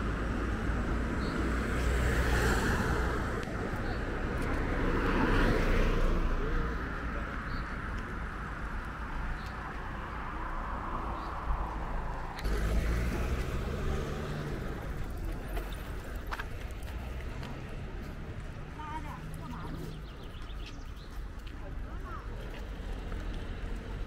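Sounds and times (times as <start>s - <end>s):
low rumble of traffic: 0.0s - 24.0s
car passing by: 1.5s - 6.9s, 10.1s - 20.0s.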